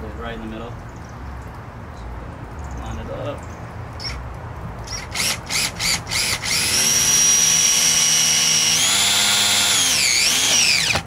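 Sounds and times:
cordless drill motor whine: 0:04.9 - 0:11.0.

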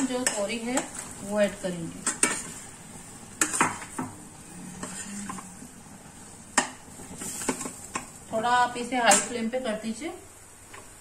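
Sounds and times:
faint sizzle: 0:00.0 - 0:11.0
ladle scraping a steel pan: 0:04.6 - 0:05.6.

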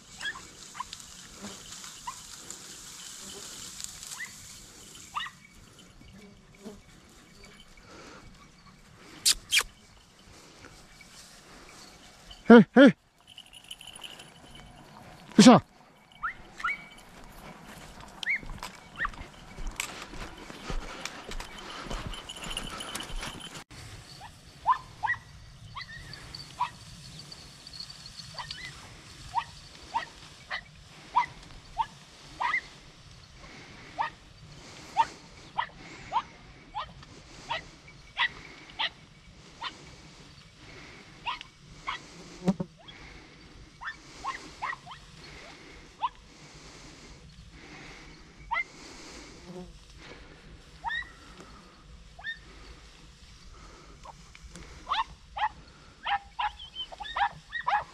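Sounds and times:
dogs yelping: 0:00.1 - 0:02.6, 0:04.0 - 0:09.8, 0:16.1 - 0:17.2, 0:18.2 - 0:23.6, 0:24.2 - 0:26.8, 0:28.1 - 0:32.8, 0:34.9 - 0:39.9, 0:41.2 - 0:42.2, 0:43.8 - 0:46.3, 0:48.5 - 0:48.7, 0:50.8 - 0:51.4, 0:52.2 - 0:52.7, 0:54.9 - 0:57.9.

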